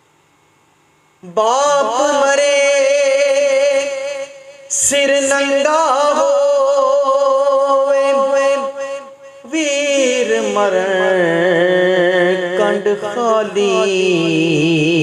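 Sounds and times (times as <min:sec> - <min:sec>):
man singing: 0:01.2 - 0:15.0.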